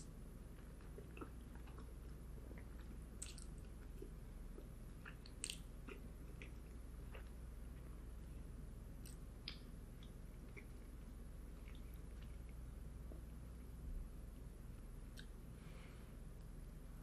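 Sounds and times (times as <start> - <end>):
person chewing food: 0.0 - 8.2, 9.0 - 13.3
wet mouth smacks and clicks: 3.2 - 3.6, 5.1 - 5.7.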